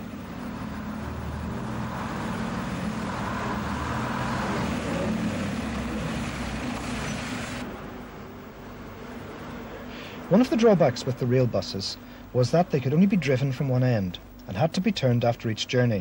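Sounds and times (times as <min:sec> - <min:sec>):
diesel railbus engine running: 0:00.0 - 0:09.9.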